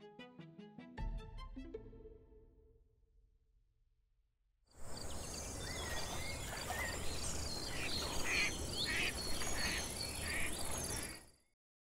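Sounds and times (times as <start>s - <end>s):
birds chirping: 4.8s - 11.2s.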